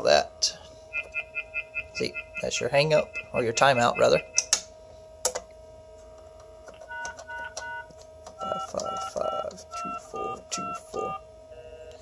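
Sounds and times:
steady background tone: 0:00.0 - 0:12.0
touch-tone keypad beeps: 0:06.9 - 0:11.2.

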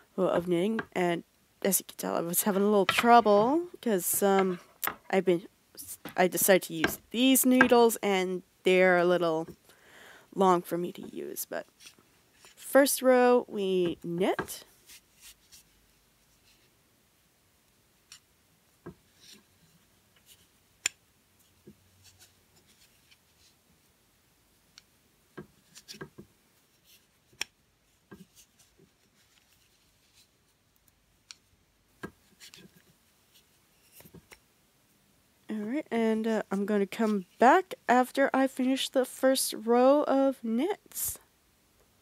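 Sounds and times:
yarn rubbing over needles: 0:00.2 - 0:09.5, 0:36.0 - 0:37.6.

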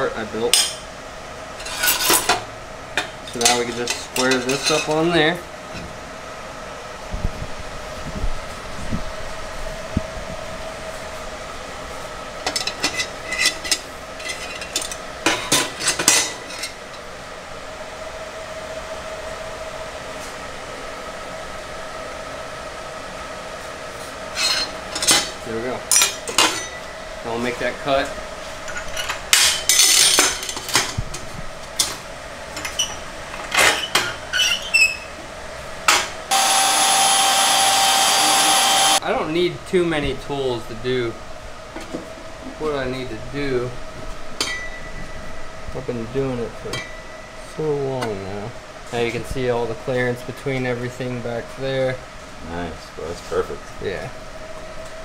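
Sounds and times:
power tool whine: 0:36.3 - 0:39.0.

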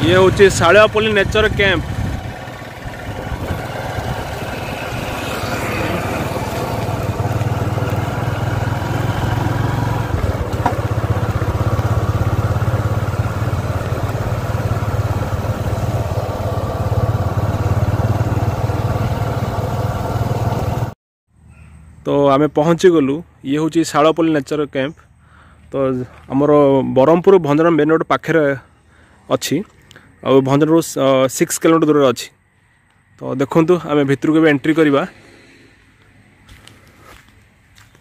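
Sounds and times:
vehicle engine running: 0:00.0 - 0:21.0
road noise: 0:00.0 - 0:38.0.

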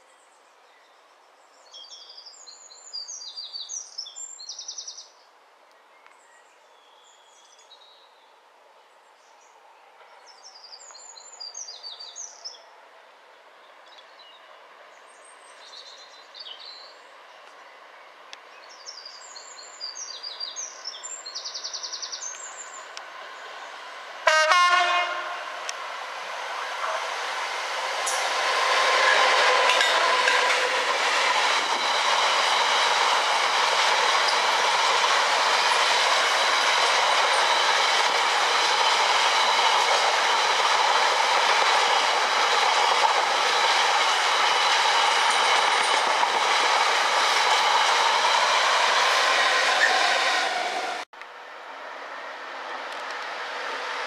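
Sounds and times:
train wheels rumbling over track: 0:20.1 - 0:54.0
locomotive horn: 0:24.2 - 0:25.7.

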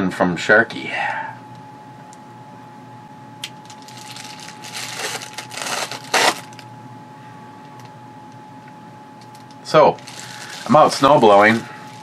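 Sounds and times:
plastic mailer crinkling and tearing: 0:03.5 - 0:06.6, 0:09.3 - 0:12.0.

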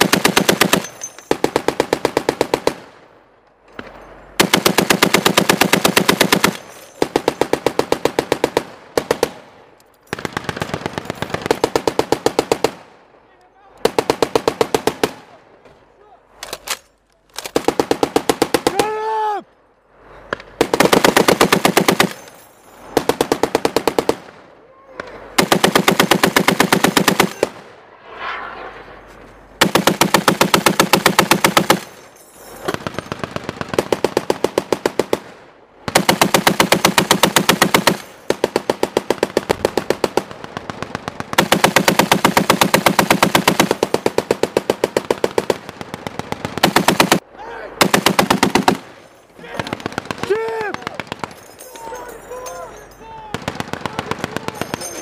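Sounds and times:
heavy machine gun firing bursts: 0:00.0 - 0:02.8, 0:04.4 - 0:09.3, 0:10.1 - 0:12.8, 0:20.6 - 0:22.2, 0:22.9 - 0:24.3, 0:25.4 - 0:27.6, 0:29.6 - 0:31.9, 0:32.7 - 0:35.3, 0:35.9 - 0:47.2, 0:47.8 - 0:48.9, 0:49.6 - 0:50.3, 0:53.4 - 0:55.0.

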